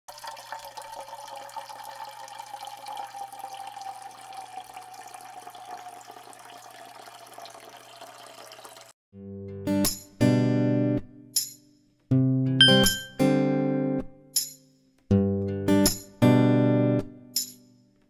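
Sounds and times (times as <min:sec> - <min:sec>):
water trickling and splashing: 0:00.1 - 0:09.0
ringing tone falling in pitch: 0:12.6 - 0:13.2.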